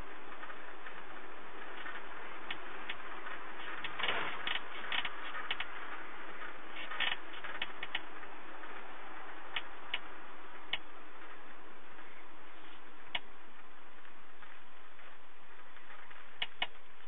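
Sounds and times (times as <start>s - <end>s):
minibus road and engine noise: 0.0s - 17.0s
clicks and rattles: 0.3s - 11.4s.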